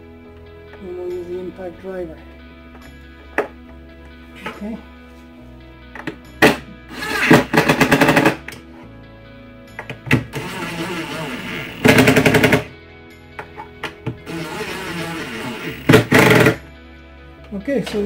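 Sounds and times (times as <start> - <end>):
background music: 0.0 - 18.0
impact driver hammering screws: 6.4 - 8.4, 10.1 - 12.7, 14.2 - 16.6.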